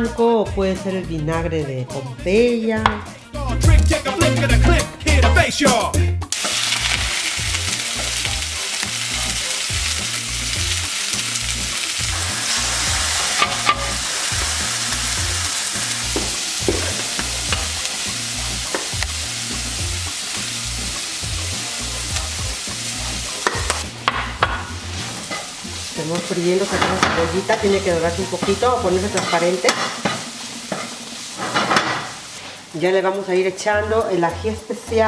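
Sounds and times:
onion sizzling in oil: 6.3 - 34.9.

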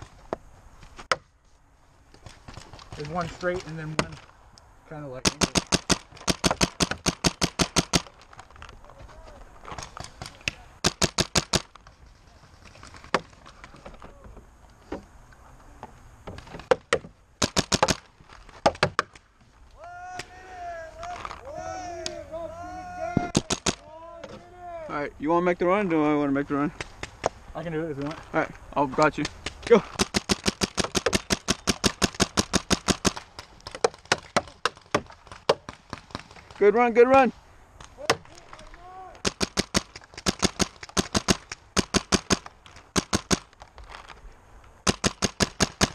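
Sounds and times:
paintball markers firing: 5.2 - 8.3, 9.7 - 11.8, 16.7 - 19.2, 23.2 - 23.8, 29.0 - 36.6, 37.8 - 43.6, 44.8 - 45.9.

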